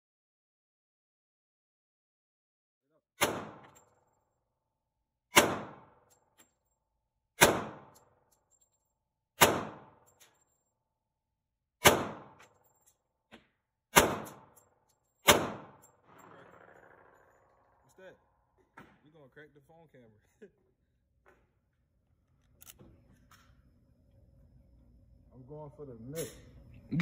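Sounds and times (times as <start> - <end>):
pistol shots echoing indoors: 3.2 - 4.2, 5.3 - 6.6, 7.4 - 8.5, 9.4 - 10.8, 11.8 - 13.0, 13.9 - 16.2.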